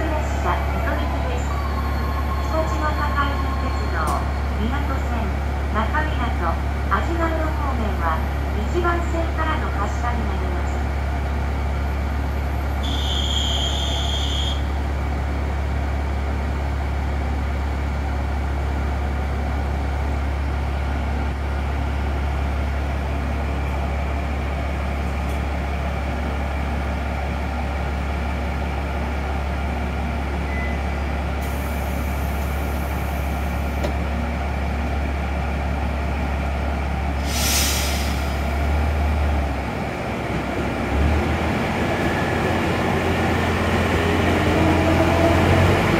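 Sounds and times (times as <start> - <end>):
diesel railcar engine idling: 0.0 - 45.9
compressed-air hiss: 37.2 - 38.3.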